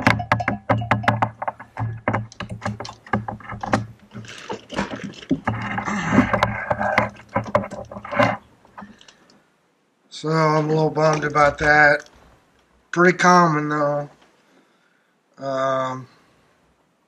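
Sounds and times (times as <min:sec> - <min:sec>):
clicks clinks and knocks: 0:00.0 - 0:09.1
rustling scrape: 0:02.8 - 0:09.1.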